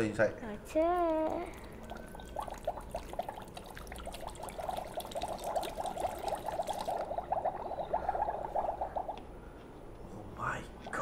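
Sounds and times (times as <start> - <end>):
water trickling with gurgles: 0.7 - 9.5.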